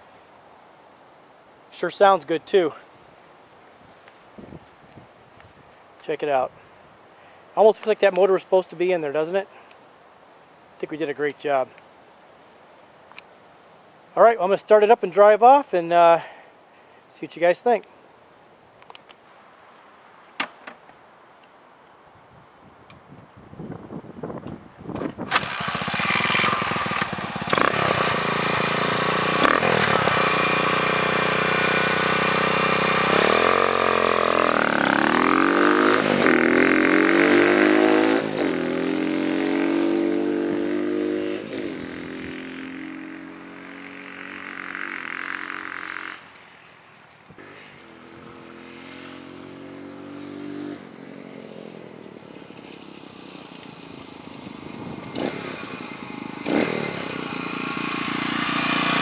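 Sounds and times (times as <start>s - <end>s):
dirt bike engine revving: 25.2s - 46.3s, 47.4s - 59.0s.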